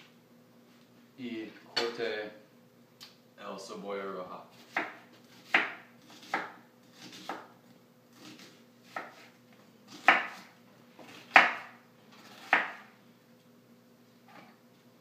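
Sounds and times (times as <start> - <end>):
knife chopping on wooden board: 4.6 - 7.6, 8.2 - 9.3, 9.9 - 12.9.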